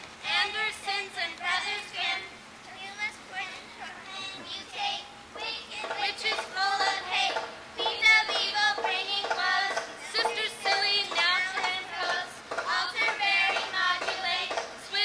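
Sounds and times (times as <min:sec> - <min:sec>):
song with singing voices: 0:04.7 - 0:15.0.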